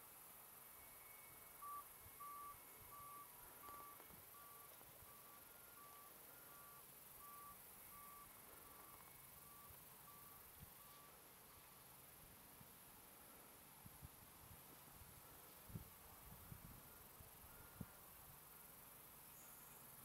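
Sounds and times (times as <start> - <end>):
faint hiss: 0.0 - 20.0
short electronic beeps: 0.8 - 11.6.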